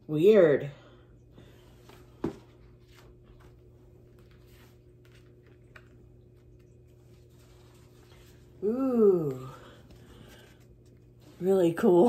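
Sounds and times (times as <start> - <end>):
paper pages rustling: 1.8 - 8.6.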